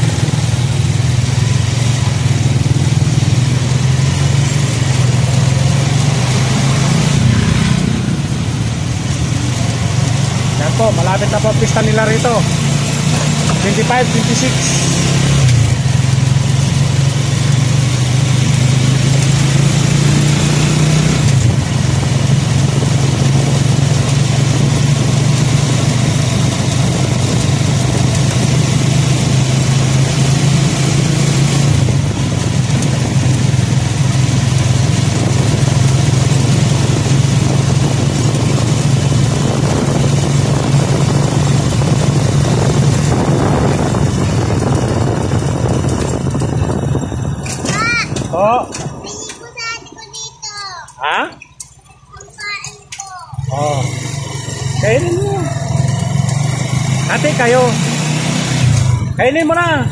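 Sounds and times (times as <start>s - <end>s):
motorcycle engine running: 0.0s - 50.2s, 50.9s - 59.9s
wind noise on microphone: 19.5s - 50.0s.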